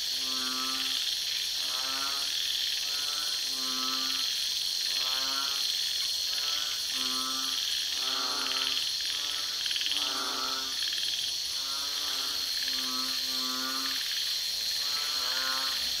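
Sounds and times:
frogs croaking: 0.0s - 16.0s
high-pitched insect drone: 0.0s - 16.0s.

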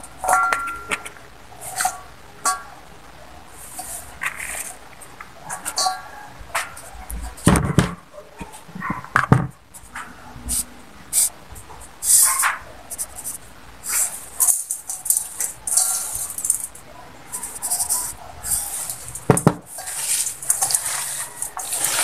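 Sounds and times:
wet scrunching in steel bowl: 12.3s - 22.0s.

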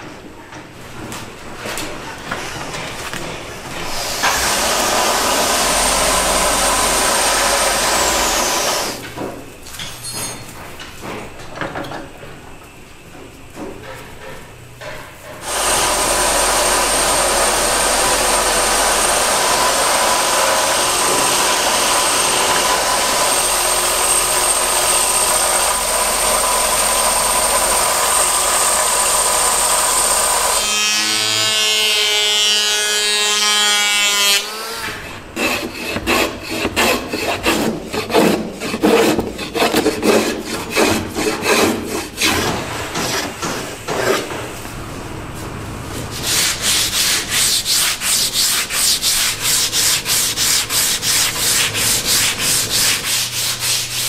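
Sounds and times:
belt sander whining: 3.9s - 9.0s, 15.4s - 32.5s
hand rasp scraping wood: 35.4s - 44.3s, 46.1s - 54.0s.

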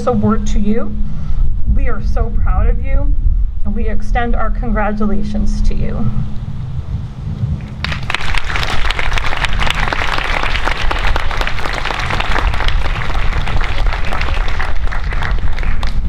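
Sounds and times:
audience applauding: 7.8s - 16.0s.

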